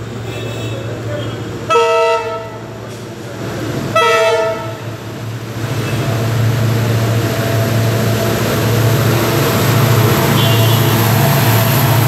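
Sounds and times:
locomotive engine rumble: 0.0s - 12.0s
train horn blast: 1.7s - 2.7s, 3.9s - 4.9s, 10.3s - 11.0s.

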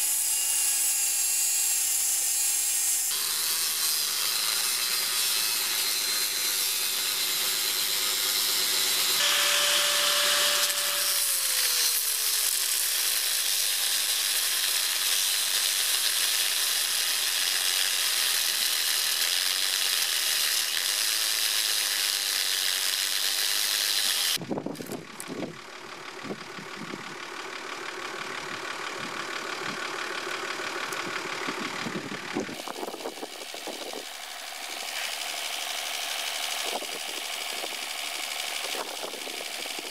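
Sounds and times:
angle grinder grinding steel: 0.0s - 25.0s, 32.4s - 39.9s.

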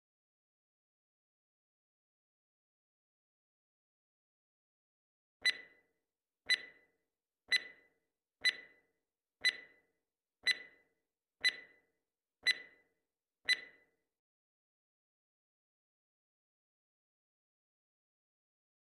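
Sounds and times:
clock-like ticks with ringing tone: 5.4s - 5.9s, 6.5s - 6.9s, 7.5s - 12.9s, 13.5s - 13.9s.

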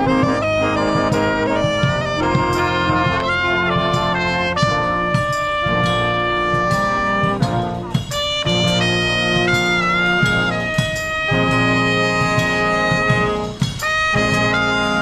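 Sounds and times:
brass instruments playing tune: 0.0s - 15.0s
sousaphone bass: 0.0s - 15.0s
steady drum beat: 0.0s - 15.0s.

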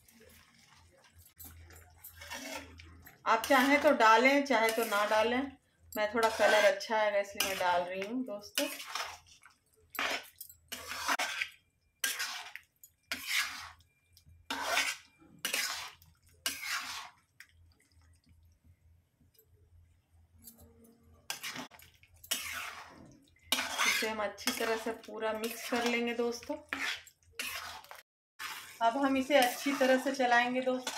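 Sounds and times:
spatula scraping thick curry: 1.9s - 13.9s, 14.5s - 17.4s, 21.2s - 30.9s.

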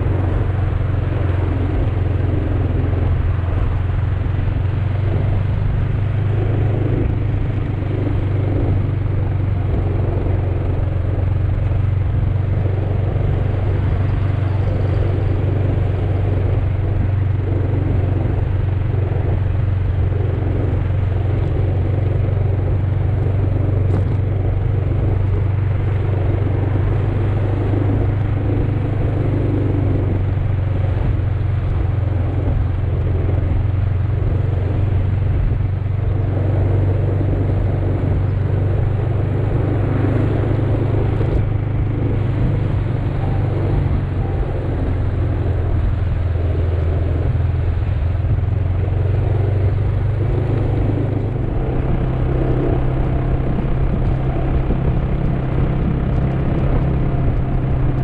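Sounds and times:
motor scooter engine running: 0.0s - 58.0s
road noise: 0.0s - 58.0s
wind noise: 0.0s - 58.0s.

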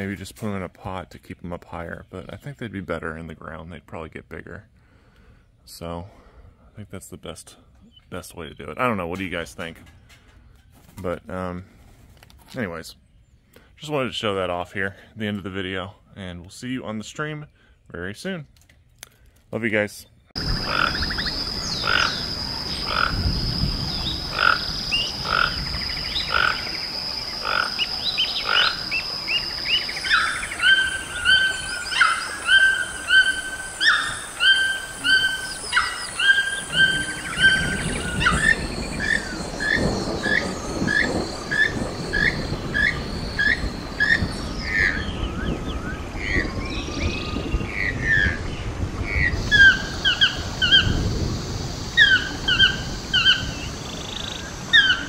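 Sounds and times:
toucan yelping calls: 20.4s - 45.1s, 49.2s - 51.0s, 51.9s - 55.0s
short toucan calls: 20.6s - 23.2s, 24.3s - 25.6s, 26.2s - 26.7s, 27.4s - 29.0s, 29.7s - 44.2s.

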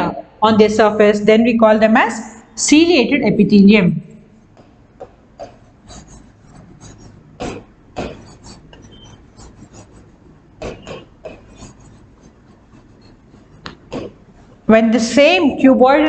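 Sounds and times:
marker scratching on whiteboard: 4.4s - 14.6s.

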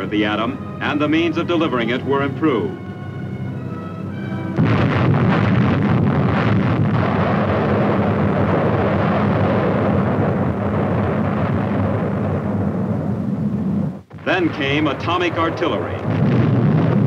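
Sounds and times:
held music notes: 0.0s - 5.3s
bomb explosion rumbling and crackling: 4.4s - 17.0s.

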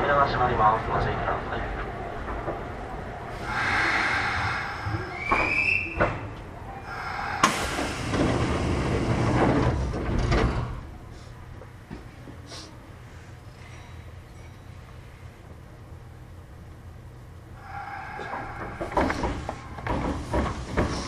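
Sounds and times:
rushing noise: 3.2s - 10.0s, 17.6s - 21.0s
train doors slamming shut: 3.6s - 10.8s, 17.7s - 21.0s.

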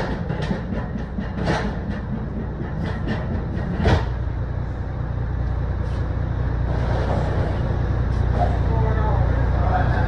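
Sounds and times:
pallet jack rolling: 0.0s - 4.2s
steady low rumble: 0.0s - 10.0s.

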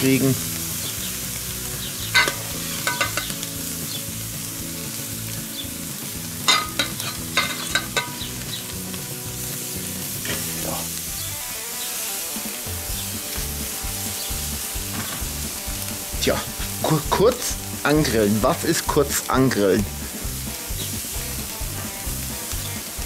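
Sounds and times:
meat sizzling on a grill: 0.0s - 23.0s
metal tongs clicking: 6.5s - 8.2s.

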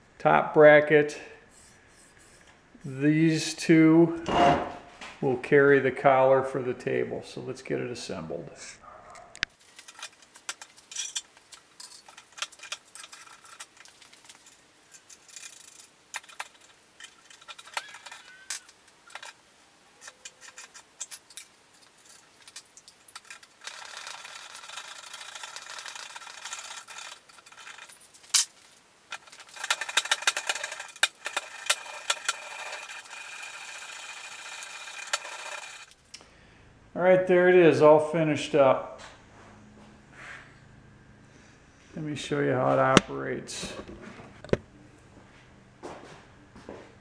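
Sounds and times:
metal parts clinking and rattling: 9.6s - 19.4s, 20.0s - 36.0s.

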